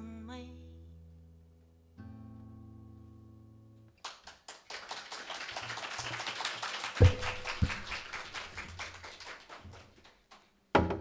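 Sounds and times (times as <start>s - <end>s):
woman singing: 0.0s - 1.0s
acoustic guitar: 0.0s - 4.0s, 7.0s - 8.0s
audience applause: 4.0s - 10.4s.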